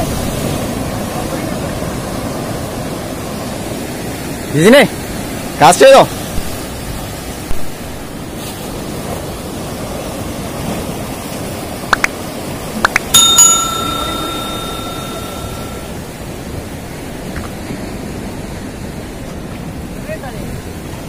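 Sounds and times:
sea surf: 0.0 - 21.0
bell ding: 12.9 - 16.0.

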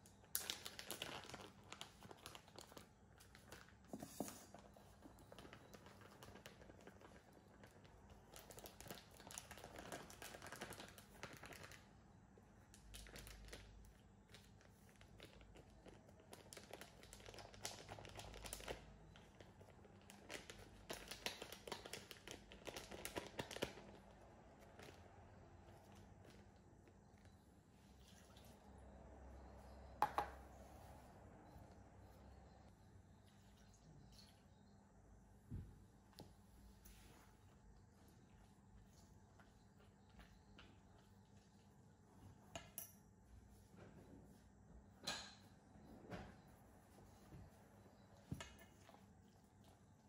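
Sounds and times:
flour bag crinkling: 0.2 - 3.9, 4.6 - 11.9, 12.7 - 25.0.

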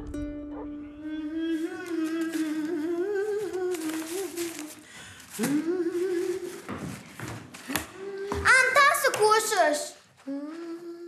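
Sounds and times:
person humming: 0.0 - 4.8, 5.4 - 6.7, 7.8 - 8.4, 10.2 - 11.0.

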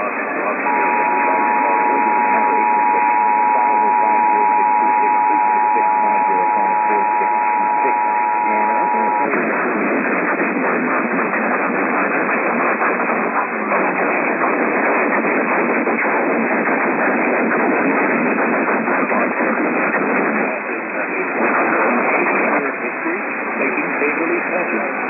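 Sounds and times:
faint voice message: 0.0 - 9.9
radio static: 0.0 - 25.0
two-tone alert signal: 0.6 - 9.3.

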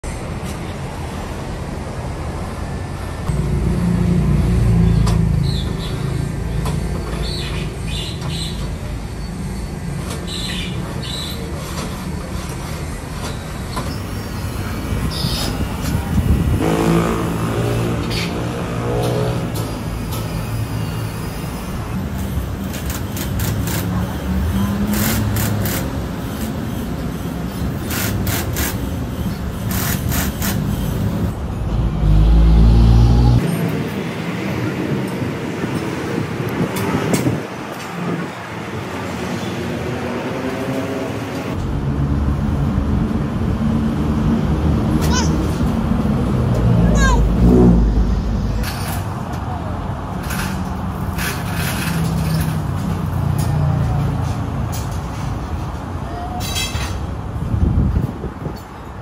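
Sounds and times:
passing vehicles rumbling: 0.0 - 59.0
heavy vehicle passing: 16.0 - 20.8, 31.2 - 55.5.

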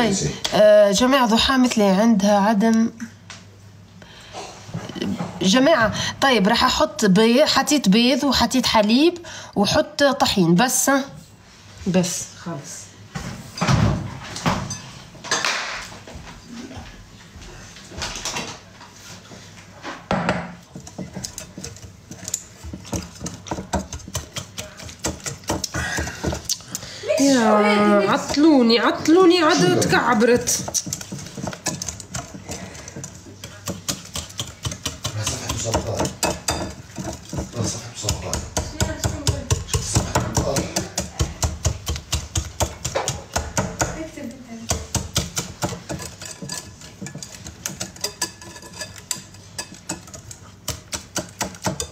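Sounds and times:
bowls and utensils knocking: 20.1 - 26.6, 28.1 - 51.9.

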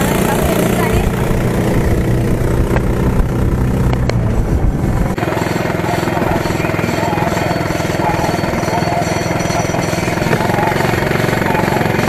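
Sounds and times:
tractor engine chugging: 0.0 - 12.0.

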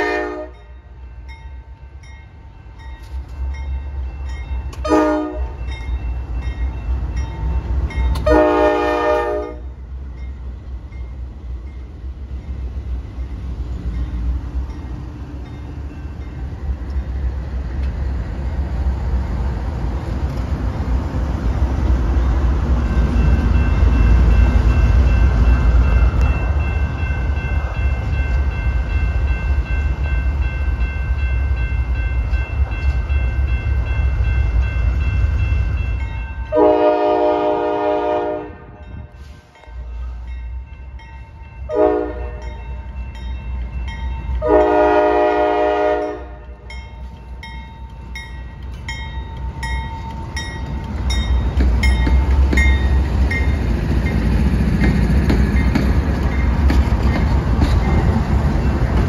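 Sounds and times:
locomotive air horn blasts: 0.0 - 0.6, 4.8 - 5.6, 8.2 - 9.7, 36.5 - 38.8, 41.7 - 42.5, 44.4 - 46.5
crossing bell ringing: 0.0 - 17.0, 22.2 - 59.0
diesel locomotives rumbling: 0.0 - 59.0.

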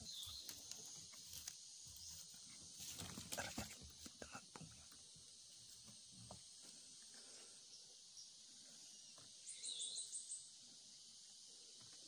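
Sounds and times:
bird chirping: 0.0 - 1.2, 7.7 - 11.5
high insect hiss: 0.0 - 12.0.

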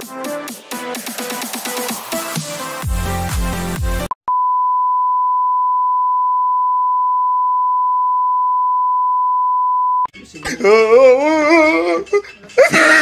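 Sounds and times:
steady single-pitch test tone: 4.3 - 10.1.

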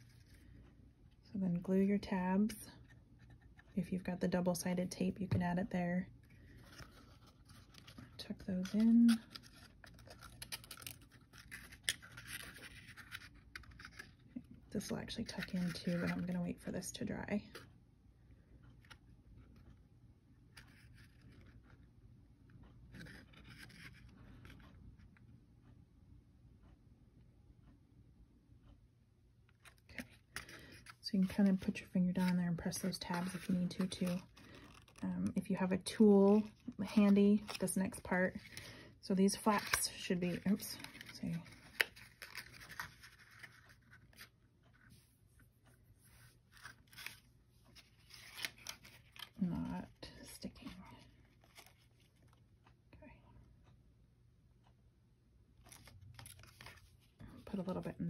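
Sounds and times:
cardstock rustling and scraping: 6.2 - 16.8, 20.5 - 21.8, 22.9 - 24.7, 29.6 - 45.1, 46.0 - 49.7, 55.7 - 57.6.

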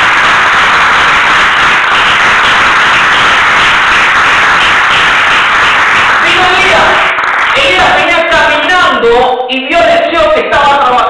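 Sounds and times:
crowd applauding loudly: 0.0 - 8.8.

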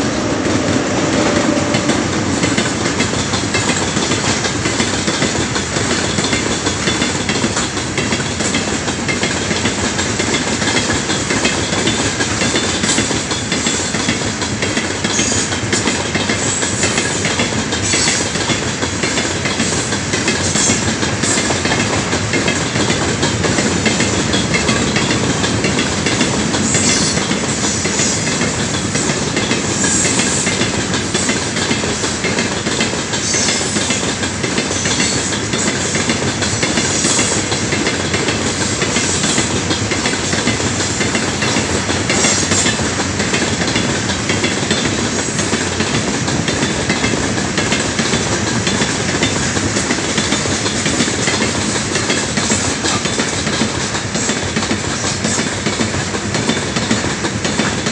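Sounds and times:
steel wheels rolling on rails: 0.0 - 57.9
wheels clattering over rail joints: 0.0 - 57.9.

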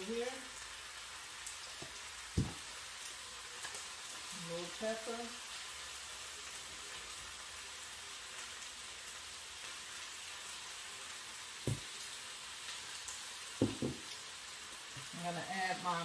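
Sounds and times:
spinach sizzling in oil: 0.0 - 16.0
knocks: 13.6 - 14.0.

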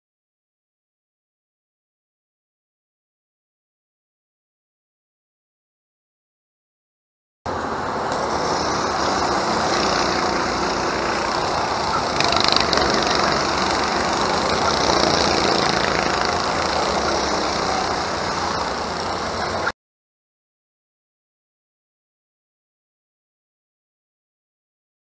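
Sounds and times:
go-kart engines racing: 7.5 - 19.8.

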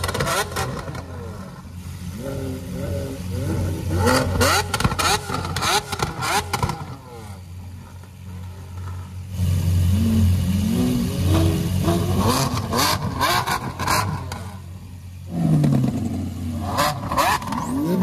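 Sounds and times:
sports car engine idling and revving: 0.0 - 18.0.

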